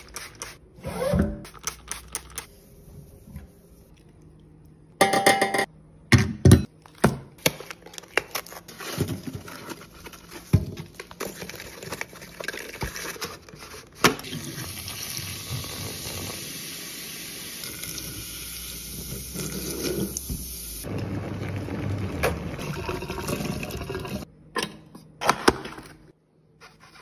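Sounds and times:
water running into drain: 14.2s - 24.3s.

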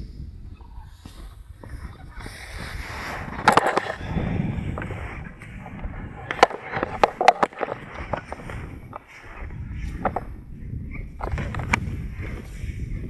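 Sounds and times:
sled runners scraping on snow: 0.0s - 13.0s
tow poles knocking: 3.3s - 10.3s.

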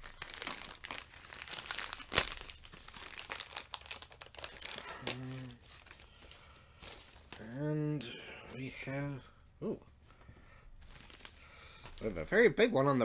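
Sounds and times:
plastic wrapping crinkling and tearing: 0.0s - 7.6s, 10.8s - 12.2s.

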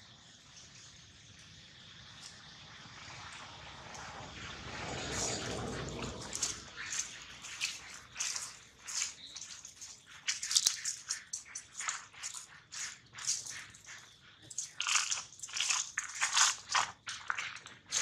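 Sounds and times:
dry leaves crunching underfoot: 5.0s - 18.0s.

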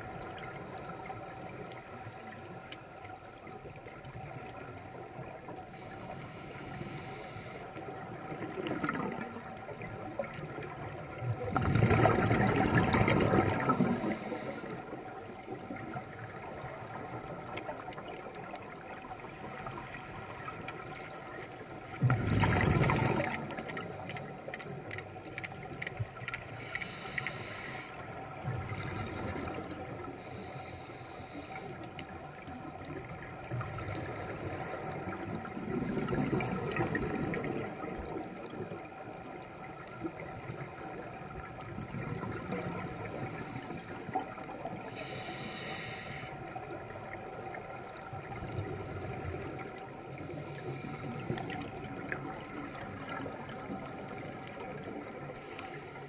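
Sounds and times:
faint steady hum: 0.0s - 56.0s
diver exhaling bubbles: 11.5s - 14.5s, 22.0s - 23.6s.

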